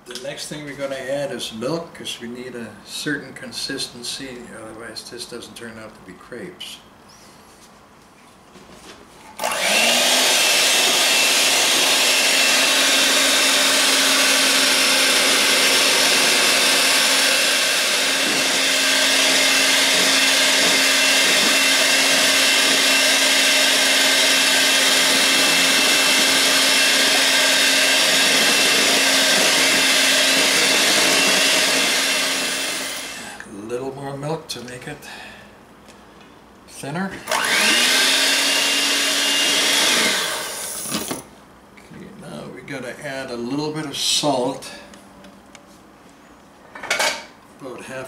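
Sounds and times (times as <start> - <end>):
electric hand mixer running: 9.4 - 33.3, 37.3 - 41.1.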